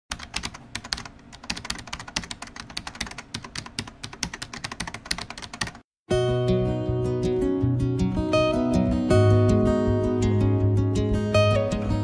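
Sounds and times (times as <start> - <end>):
computer keyboard typing: 0.1 - 5.8.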